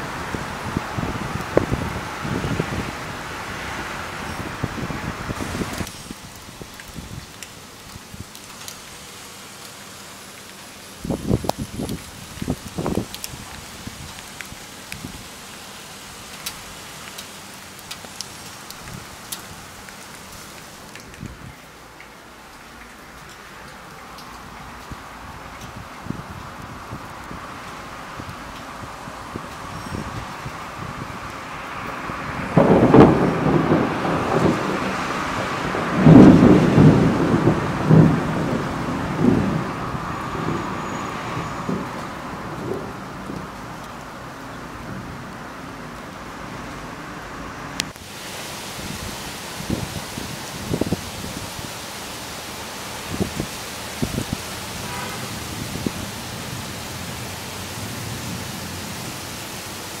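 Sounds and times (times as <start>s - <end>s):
thunder rumbling: 0.0s - 7.4s, 29.1s - 45.4s
heavy rain hissing: 0.0s - 60.0s.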